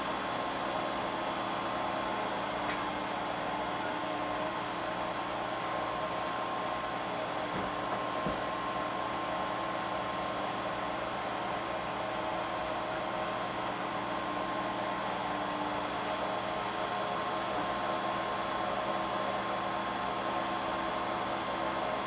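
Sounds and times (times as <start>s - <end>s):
printer humming and whining: 0.0s - 22.0s.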